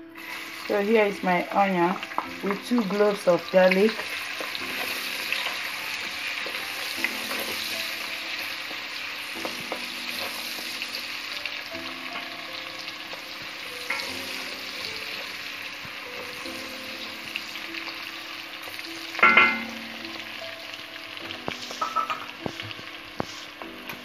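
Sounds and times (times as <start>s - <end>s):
onion and garlic sizzling in oil: 0.0s - 24.0s
wooden spoon scraping a pot: 21.5s - 23.6s.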